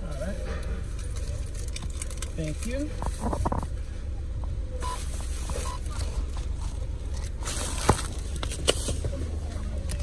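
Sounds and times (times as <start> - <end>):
knocks and rustles: 0.4 - 3.8
short faint beeps: 4.8 - 5.9.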